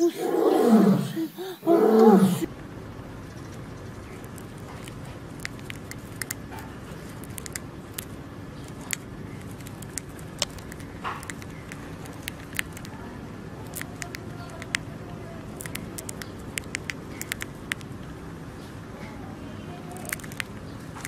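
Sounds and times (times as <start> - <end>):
steady low hum: 0.0 - 21.0
hamster nibbling popcorn: 3.9 - 18.0, 19.8 - 21.0.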